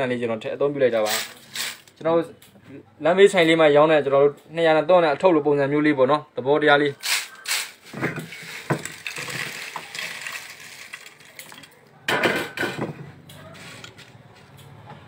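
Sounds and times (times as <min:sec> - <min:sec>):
fried potato slices clattering: 0:07.0 - 0:11.8.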